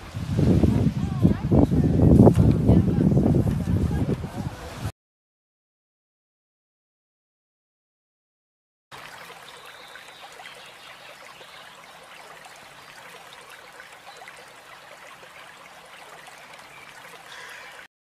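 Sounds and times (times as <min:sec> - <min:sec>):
water splashing and trickling: 0:00.0 - 0:04.9, 0:08.9 - 0:17.9.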